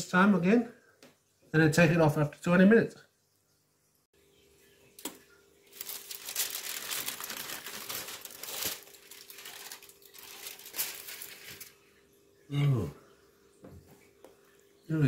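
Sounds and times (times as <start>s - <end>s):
aluminium foil crinkling: 5.0s - 11.8s.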